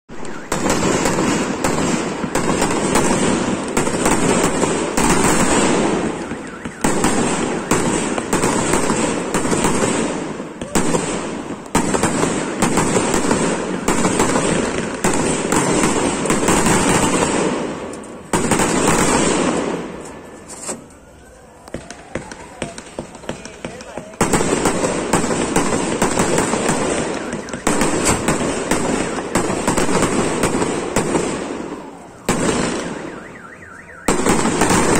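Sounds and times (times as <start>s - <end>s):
fireworks bangs and crackling: 0.1s - 34.9s.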